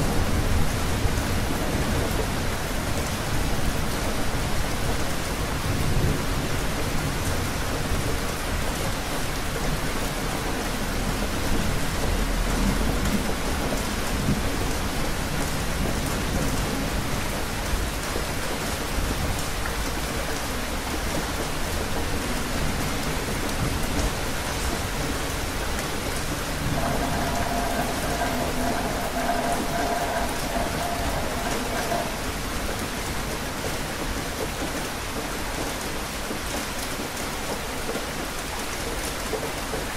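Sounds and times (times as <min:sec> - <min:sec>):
heavy rain falling: 0:00.0 - 0:39.9
distant thunder rumbling: 0:26.2 - 0:33.3.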